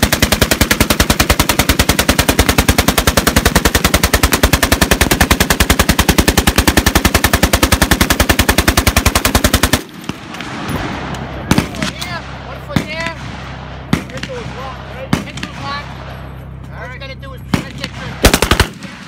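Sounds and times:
machine gun firing full-auto: 0.0 - 10.4, 17.5 - 19.0.

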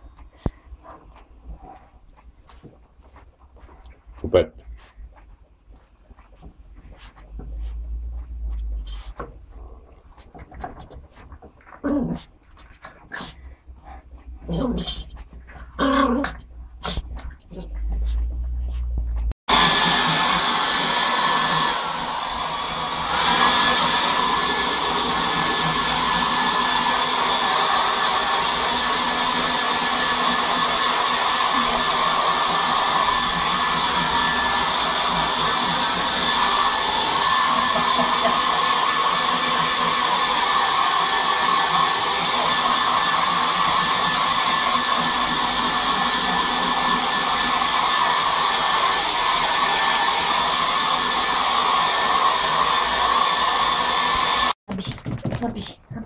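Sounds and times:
hair dryer blowing with whine: 19.5 - 54.6.

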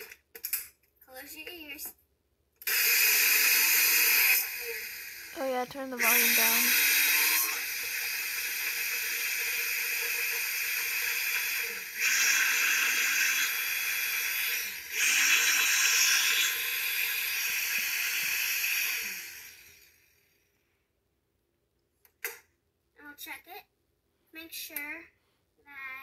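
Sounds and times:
blender running at high speed: 2.6 - 20.4.

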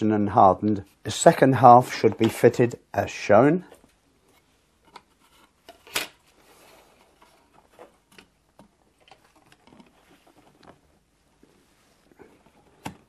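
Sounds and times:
plastic parts clicking and tapping: 7.2 - 10.0.

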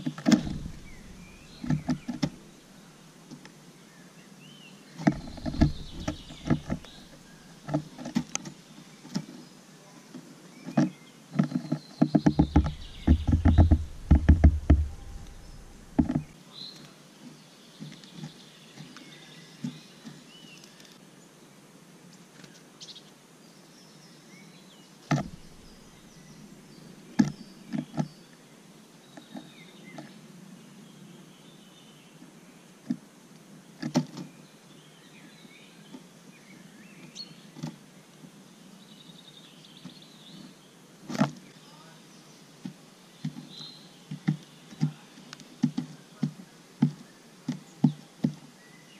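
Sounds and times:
bird pecking on wooden feeder: 0.2 - 2.6, 5.0 - 8.2, 11.4 - 16.3, 25.1 - 26.0.

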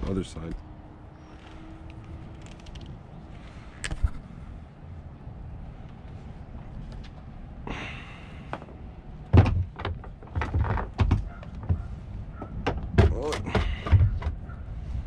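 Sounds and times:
knocks of parts and tools: 8.5 - 14.4.

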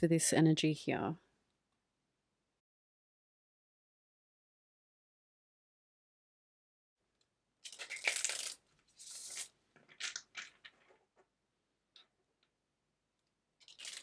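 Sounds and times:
cards being shuffled: 7.7 - 11.0.

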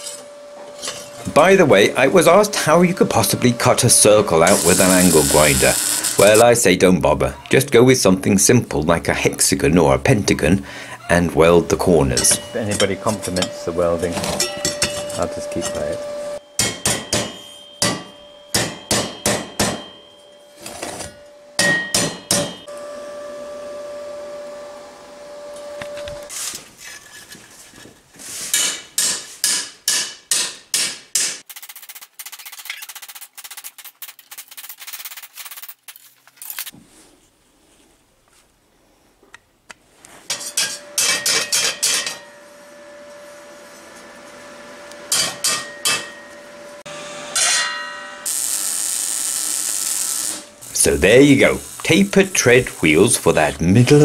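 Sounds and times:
metallic ring: 12.1 - 22.8, 40.3 - 43.1, 45.1 - 46.8, 47.4 - 48.3.

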